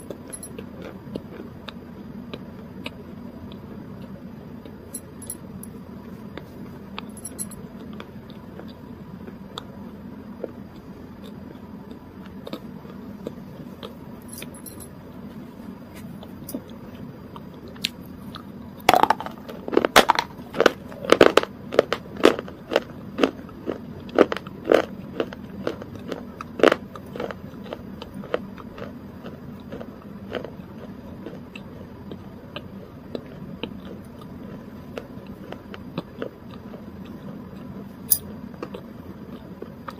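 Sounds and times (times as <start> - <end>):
loud sharp chewing crunches: 10.4 - 14.0, 15.9 - 37.8, 38.5 - 39.9.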